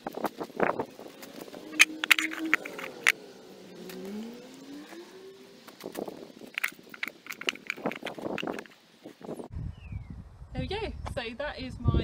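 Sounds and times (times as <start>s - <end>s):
car engine: 0.6s - 9.0s.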